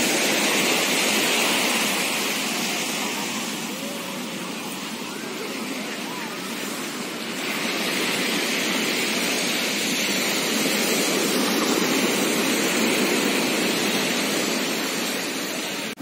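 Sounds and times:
surf washing onto beach: 0.0 - 16.0.

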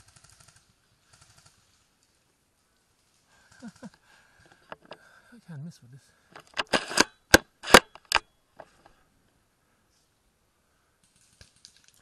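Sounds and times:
rifle bolt clicking: 6.4 - 8.3.

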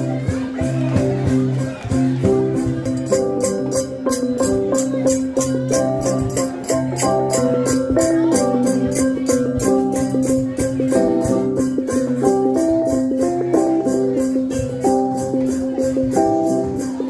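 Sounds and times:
quick high beat: 0.0 - 17.0.

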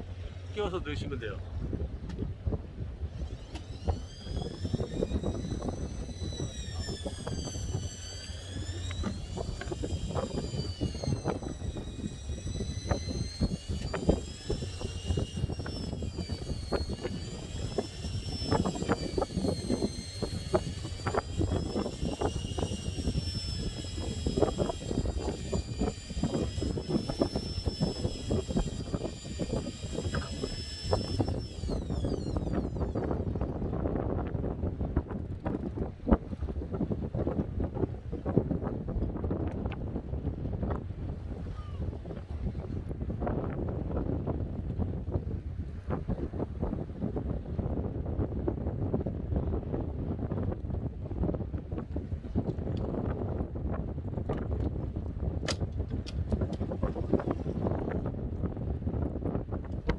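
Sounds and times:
wind: 0.0 - 59.9
electric fishing reels whining: 3.0 - 34.3, 54.2 - 58.6.

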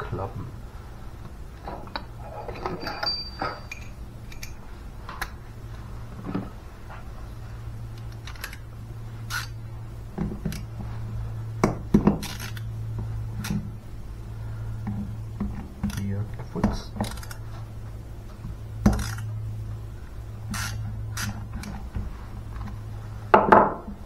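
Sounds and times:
metal tools clinking: 2.2 - 4.6.

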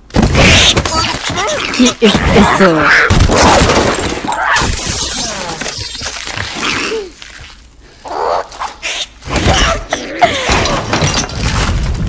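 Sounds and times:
creature yelps and whimpering cries: 8.0 - 10.8.

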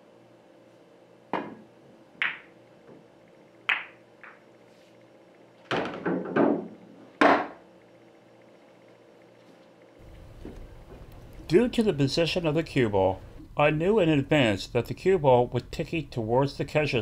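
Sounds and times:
pool cue striking cue ball: 1.3 - 2.6, 3.7 - 4.4, 5.7 - 7.6
billiard balls clicking together: 3.7 - 4.5.

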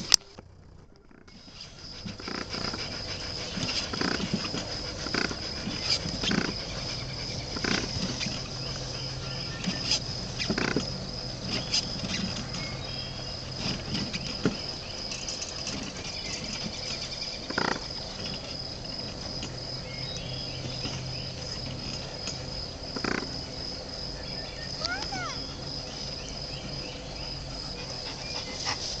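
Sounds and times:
insect chirring: 0.0 - 29.0.

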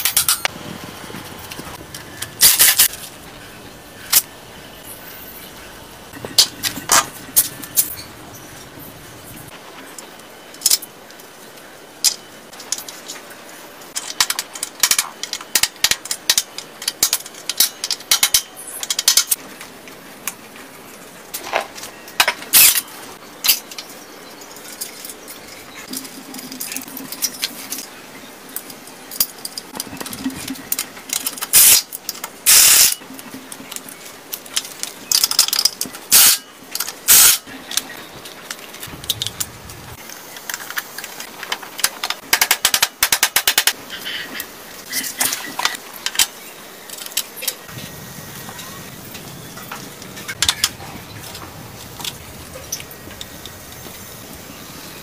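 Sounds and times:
metal tools clinking and rattling: 0.0 - 0.5.

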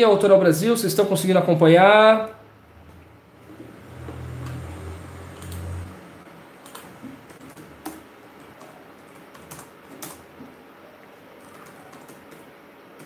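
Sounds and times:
computer keyboard keystrokes: 5.4 - 5.8, 6.6 - 10.5, 11.4 - 13.0.

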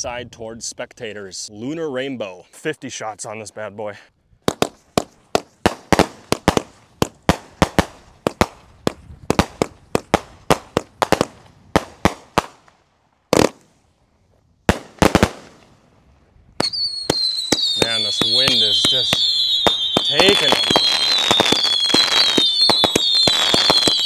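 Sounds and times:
firework cake bangs: 16.6 - 24.0.

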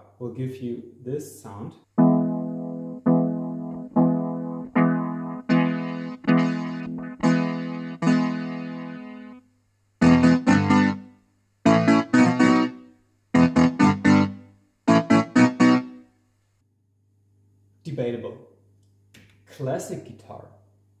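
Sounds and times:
electronic organ guitar chords: 2.0 - 9.4, 10.0 - 12.8, 13.4 - 16.0.

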